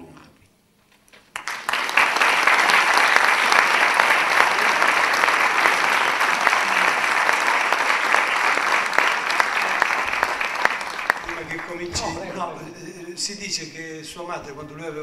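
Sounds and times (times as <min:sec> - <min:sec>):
audience applauding: 0:01.2 - 0:12.3.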